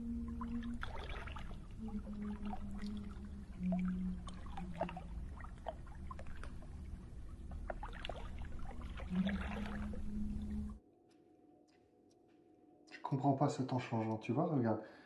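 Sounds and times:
low steady hum: 0.0 - 10.8
low tone: 0.0 - 10.8
water lapping against boat: 0.0 - 10.8.

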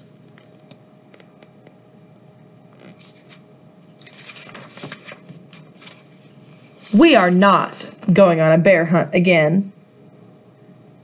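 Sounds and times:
book pages rustling: 2.7 - 7.2.

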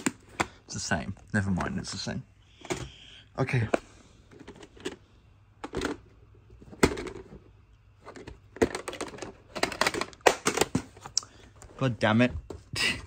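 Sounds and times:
plastic cases knocking and clicking: 0.0 - 0.7, 5.6 - 11.2.

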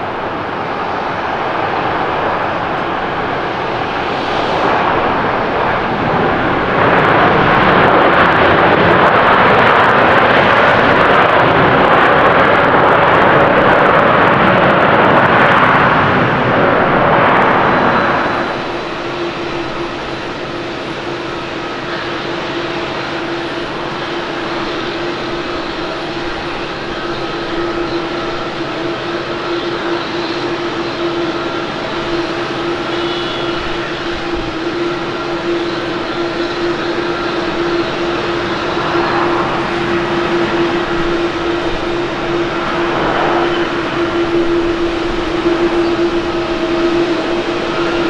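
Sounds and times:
jet engines reverse thrust: 0.0 - 48.0
jet hum of approaching plane: 0.0 - 48.0.

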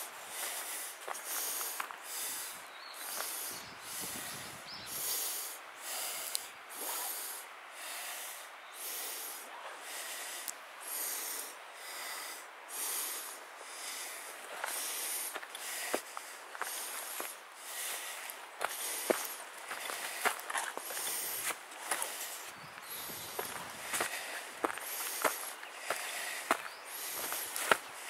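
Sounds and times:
footsteps on leafy dirt trail: 0.0 - 5.1, 13.8 - 28.0.

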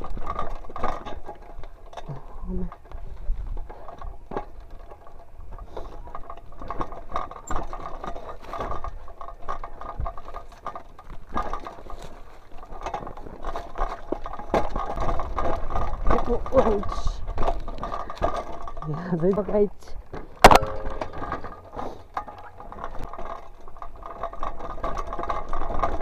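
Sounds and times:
bike rattling over dirt trail: 0.0 - 26.0.

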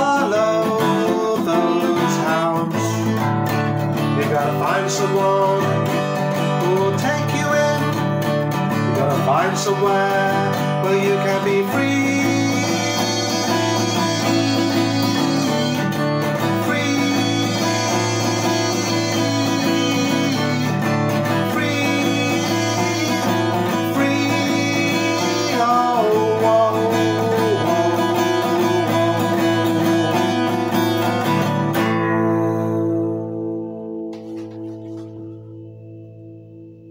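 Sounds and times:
acoustic guitar strummed: 0.0 - 36.9
wordless vocal line: 4.0 - 31.2.

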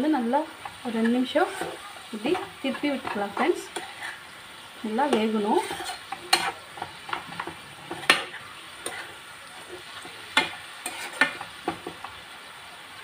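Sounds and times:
greens sizzling: 0.0 - 13.0
metal spoon scraping pan: 0.5 - 12.2.

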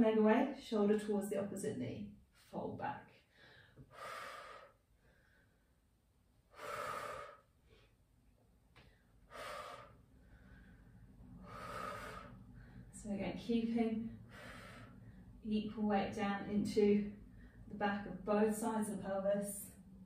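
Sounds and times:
woman breathing hard: 3.2 - 5.8, 6.5 - 8.0, 8.8 - 13.0, 14.2 - 15.4.

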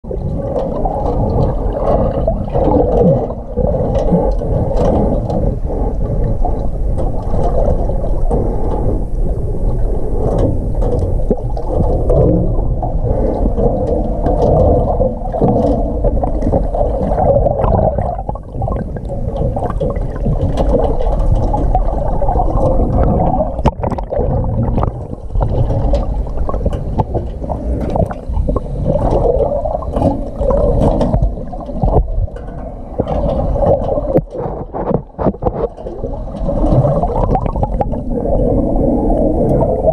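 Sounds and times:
muffled underwater water wash: 0.0 - 39.9
underwater clicks and pops: 10.2 - 38.1.

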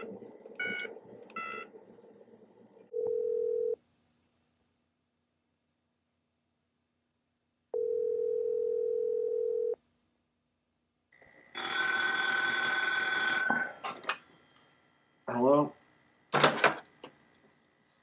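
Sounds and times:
desk telephone ringing: 2.9 - 3.8, 7.8 - 9.8, 11.6 - 14.3
telephone ringback tone: 2.9 - 3.8, 7.8 - 9.8, 11.6 - 14.2.

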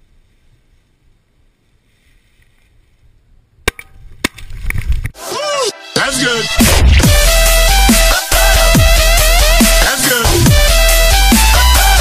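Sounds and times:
faint wind: 0.0 - 5.2
loud electronic music: 5.2 - 12.0.

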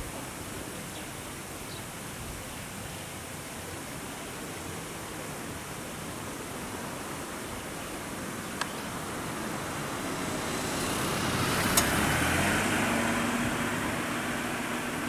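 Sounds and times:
background hiss: 0.0 - 15.0
road vehicle passing: 8.2 - 15.0.

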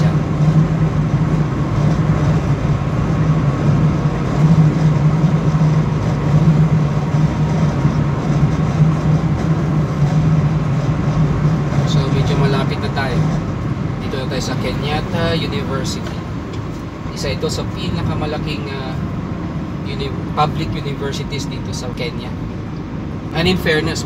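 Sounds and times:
car engine drone: 0.0 - 24.0.

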